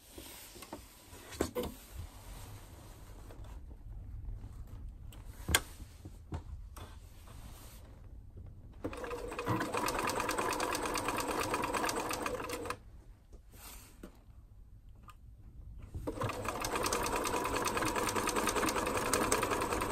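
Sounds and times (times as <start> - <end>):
quiet handling sounds: 0.0 - 8.9, 12.8 - 16.2
sewing machine stitching: 8.8 - 12.8, 16.0 - 19.9.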